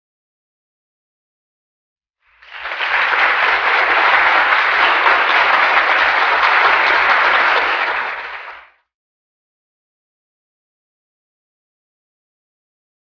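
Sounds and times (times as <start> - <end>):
crowd applause: 2.3 - 8.8.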